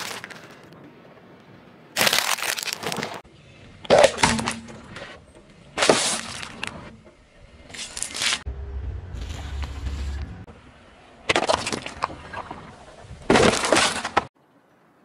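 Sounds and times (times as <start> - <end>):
tyre crushing snacks: 0.0 - 0.7, 2.0 - 3.2.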